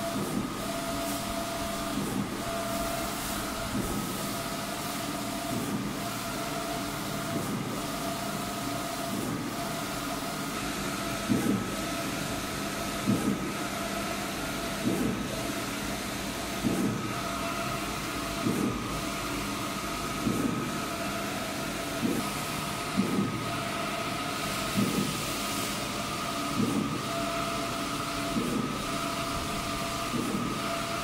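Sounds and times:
printer humming with high whine: 0.0s - 31.0s.

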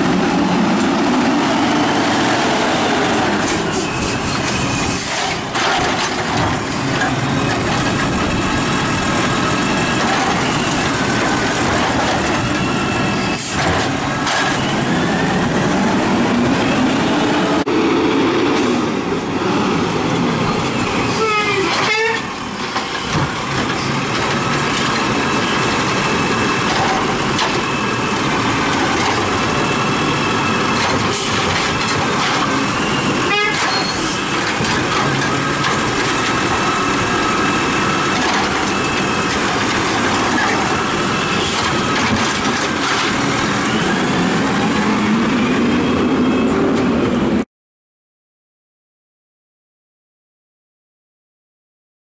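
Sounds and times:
garbage truck engine: 0.0s - 47.4s.

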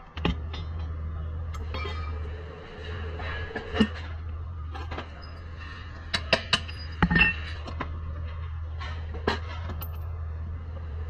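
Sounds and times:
steady low hum: 0.0s - 11.0s
metal clinks and knocks: 6.1s - 7.8s, 9.2s - 10.2s.

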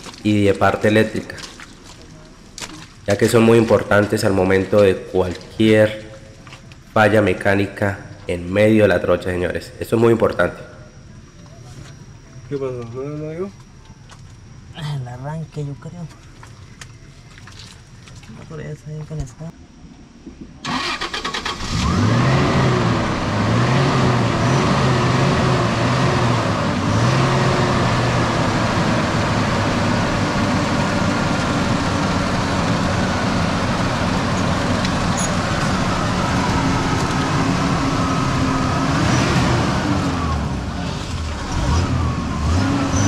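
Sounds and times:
starter motor cranking: 20.6s - 22.1s
engine revving and running: 20.7s - 43.0s.

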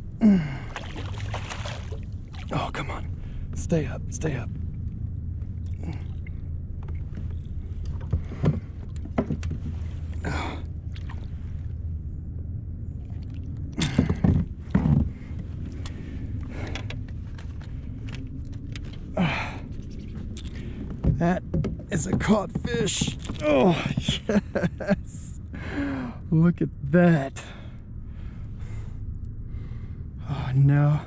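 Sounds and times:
steady low rumble: 0.0s - 31.0s
fish splashing at the surface: 0.7s - 2.5s.

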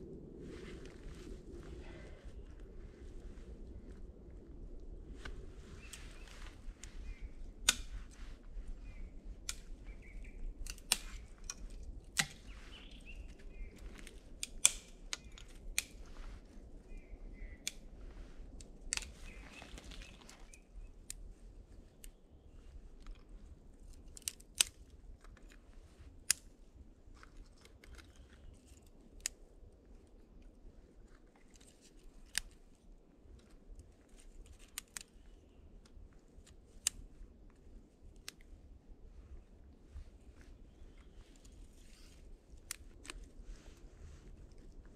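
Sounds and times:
twigs snapping: 5.1s - 21.3s, 22.9s - 29.5s, 31.1s - 38.5s, 40.3s - 44.9s.

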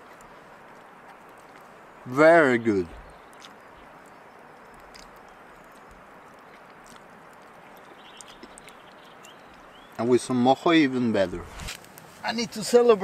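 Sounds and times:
person chewing food: 0.0s - 1.9s, 3.2s - 9.7s
low background hiss: 0.0s - 13.0s.

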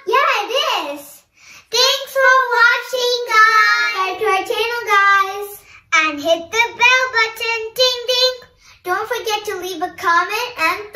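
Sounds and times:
girls singing: 2.3s - 4.8s.

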